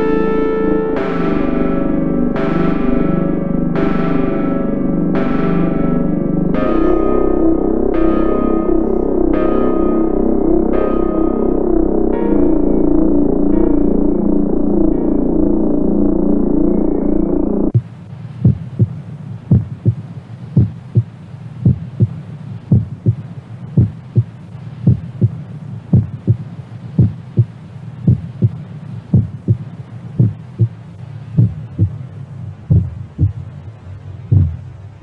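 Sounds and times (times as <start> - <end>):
steady low hum: 0.0 - 35.0
heartbeat-like thumps: 17.7 - 20.0, 20.6 - 32.0, 32.6 - 33.6, 34.3 - 34.8
faint hiss: 17.7 - 35.0.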